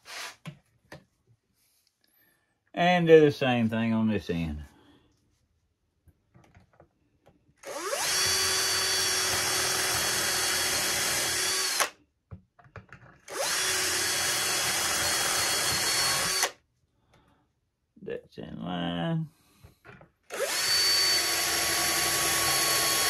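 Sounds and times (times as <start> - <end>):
cordless drill boring wood: 7.6 - 12.0, 13.2 - 16.6, 20.3 - 23.0.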